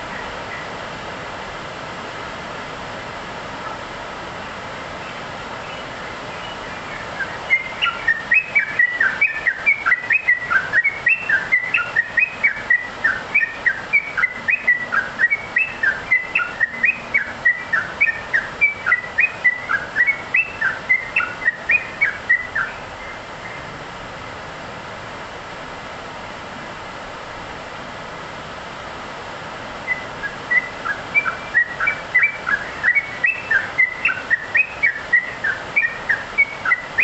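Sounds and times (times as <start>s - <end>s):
steady background hiss: 0.0s - 37.0s
bird singing whistled chirps: 6.4s - 23.6s, 29.8s - 37.0s.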